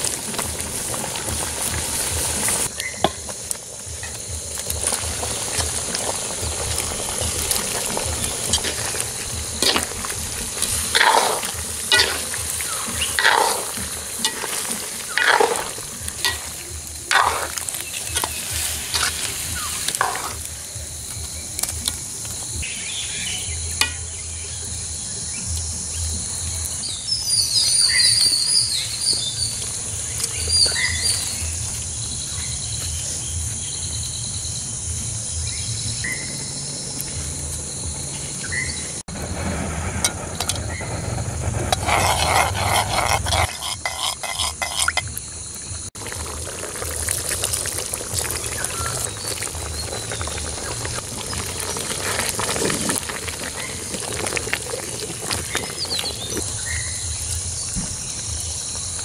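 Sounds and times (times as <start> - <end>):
food sizzling in a pan: 0.0 - 36.0, 38.1 - 59.0
spoon stirring and scraping: 7.5 - 20.4, 41.6 - 45.2.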